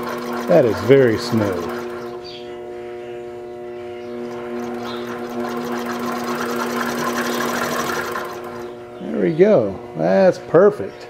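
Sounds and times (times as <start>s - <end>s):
sewing machine running: 0.0s - 2.3s, 4.3s - 8.8s.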